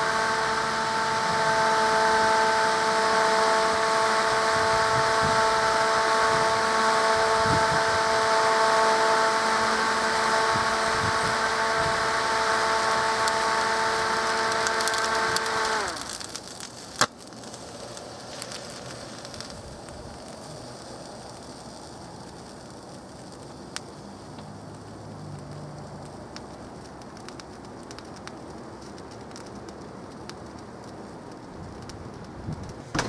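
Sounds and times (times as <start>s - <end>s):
fan motor high whine: 0.0s - 33.0s
crackling ticks: 14.2s - 32.8s.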